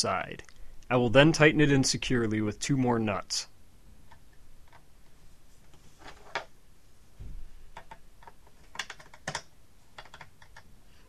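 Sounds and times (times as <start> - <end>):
soft low thump: 7.2 - 7.6.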